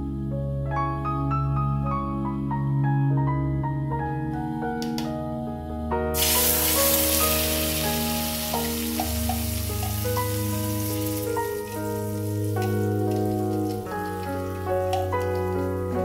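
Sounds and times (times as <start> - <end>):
background music: 0.0 - 16.0
spice paste sizzling in hot oil: 6.2 - 16.0.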